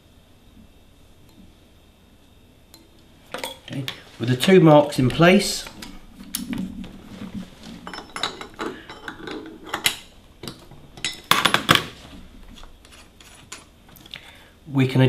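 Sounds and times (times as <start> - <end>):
metallic clinks and knocks: 7.8 - 11.8.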